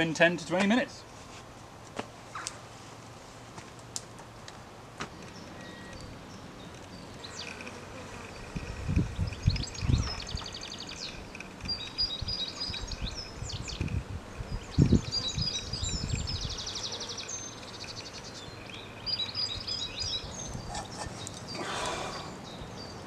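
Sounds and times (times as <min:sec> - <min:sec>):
small birds singing: 0:05.1 - 0:23.0.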